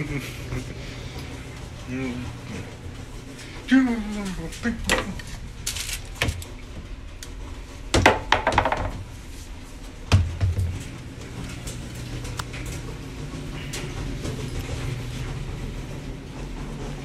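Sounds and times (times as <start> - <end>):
steady low hum: 0.0 - 17.0
knocks and thumps: 7.9 - 9.0, 10.1 - 10.9.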